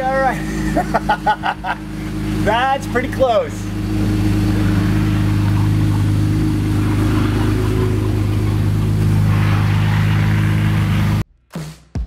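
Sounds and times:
pickup engine idling: 0.0s - 11.2s.

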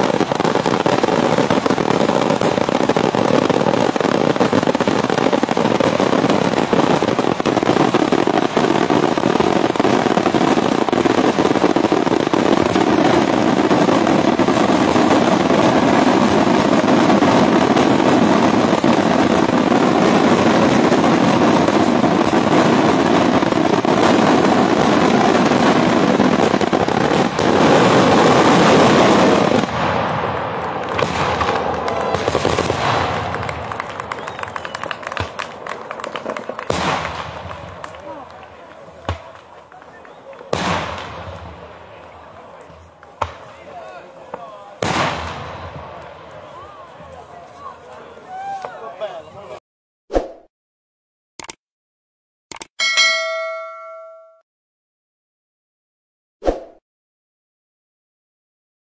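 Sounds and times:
smoke shells bursting: 0.0s - 46.5s
firecrackers rattling: 0.0s - 48.0s.

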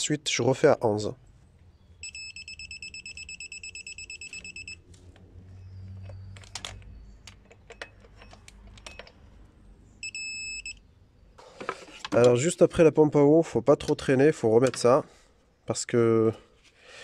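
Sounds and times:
rapid electronic beeping: 2.0s - 4.8s.

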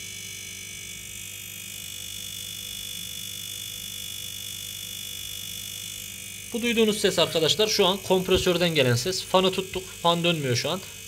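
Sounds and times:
refrigerator compressor buzzing hum: 0.0s - 11.0s
thin high whine: 3.0s - 11.0s.

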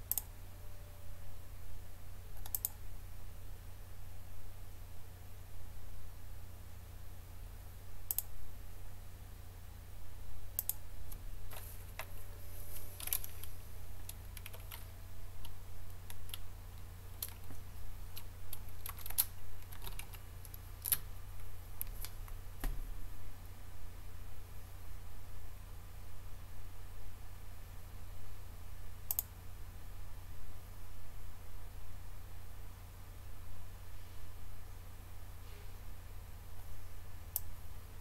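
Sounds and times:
steady low hum: 0.0s - 38.0s
computer keyboard typing: 2.3s - 2.8s, 13.0s - 22.4s.

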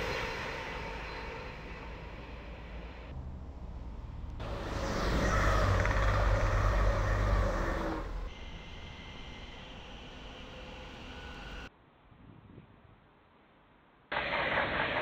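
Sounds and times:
train passing at speed: 0.0s - 11.7s.

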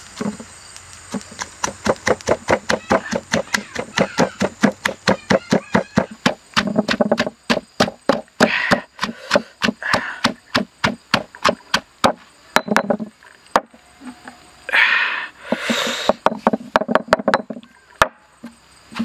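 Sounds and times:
pestle pounding in stone mortar: 1.1s - 13.1s, 16.1s - 17.6s.

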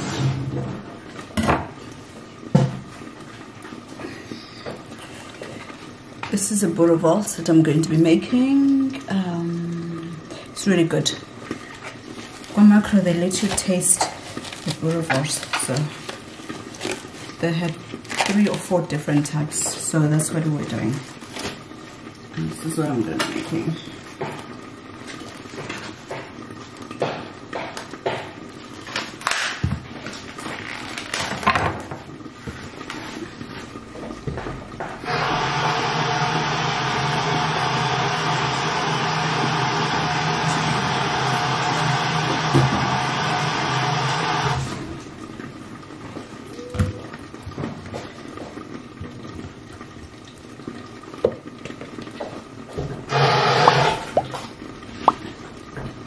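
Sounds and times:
plastic packaging crinkling: 13.3s - 18.8s, 20.8s - 21.6s, 30.1s - 31.4s.

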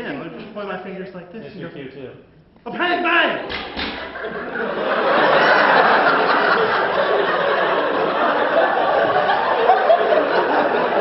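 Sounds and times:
audience laughing: 3.4s - 11.0s.

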